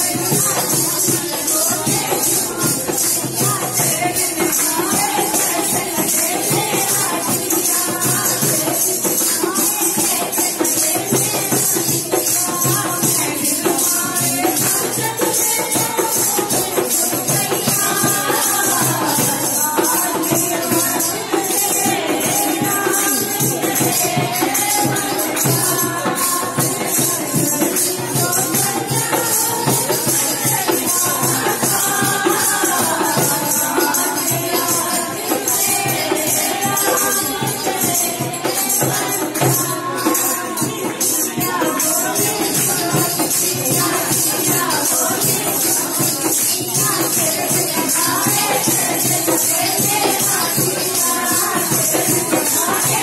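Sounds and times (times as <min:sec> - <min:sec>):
jingling hand percussion: 0:00.0 - 0:53.0.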